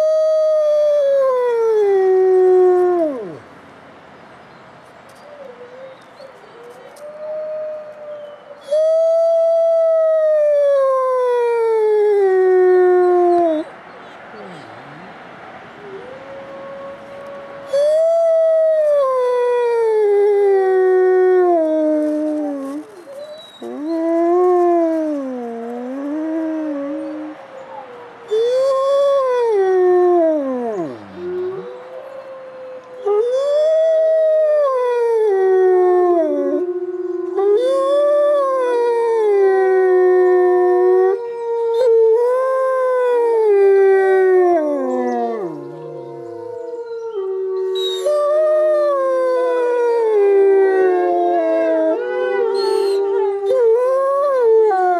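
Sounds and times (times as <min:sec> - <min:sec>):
wolf howling: 0:15.8 - 0:54.9.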